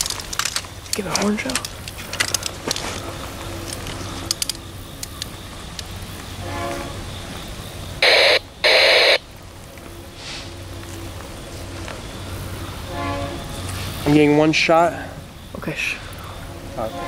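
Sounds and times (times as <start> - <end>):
locomotive engine rumbling: 0.0 - 17.0
locomotive air horn blasts: 6.4 - 7.1, 12.8 - 13.8, 16.6 - 17.0.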